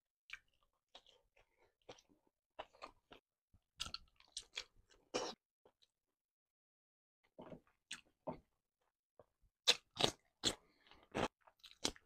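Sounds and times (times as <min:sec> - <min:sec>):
person biting and chewing: 0:09.6 - 0:12.0.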